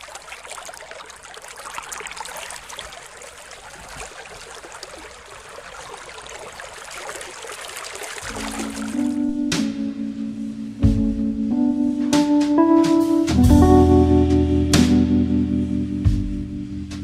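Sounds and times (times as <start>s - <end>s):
aquarium water trickling and bubbling: 0.0s - 9.3s
small splashes crackling: 0.0s - 9.4s.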